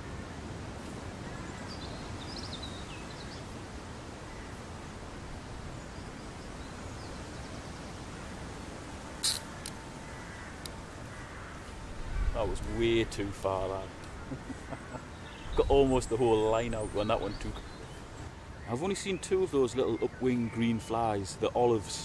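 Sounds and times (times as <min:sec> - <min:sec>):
short sharp clicks: 0:09.2 - 0:09.8
faint bird chirps: 0:09.2 - 0:13.0.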